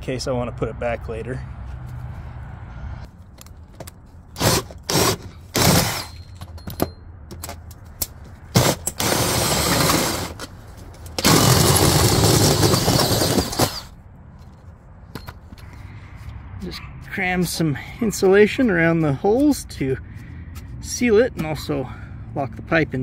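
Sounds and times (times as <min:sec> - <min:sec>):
drill cutting through sheet metal: 0:04.4 - 0:06.1, 0:08.6 - 0:10.4, 0:11.2 - 0:13.9.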